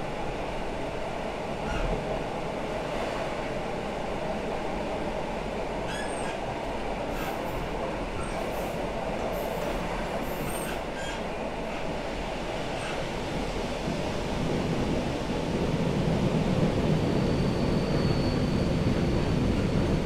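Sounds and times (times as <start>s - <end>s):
train wheels rumbling on track: 0.0s - 20.0s.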